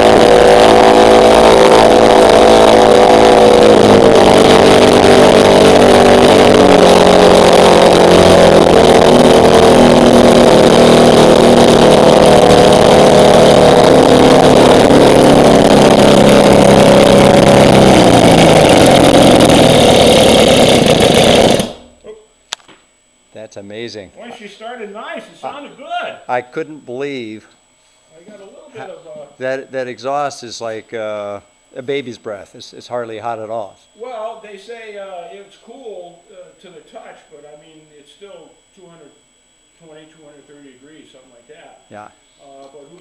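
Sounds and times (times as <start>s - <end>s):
two-stroke engine running loudly: 0.0s - 21.9s.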